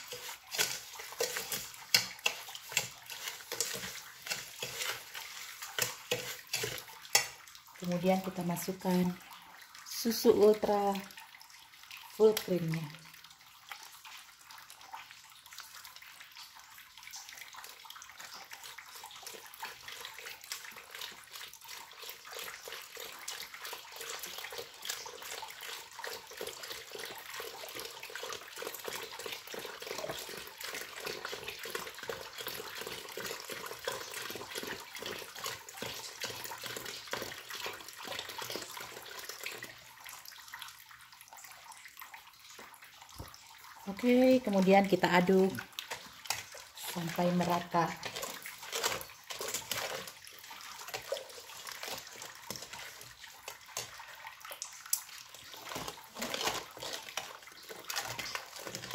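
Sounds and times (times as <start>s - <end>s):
milk pouring into a metal pot: 0.0s - 58.9s.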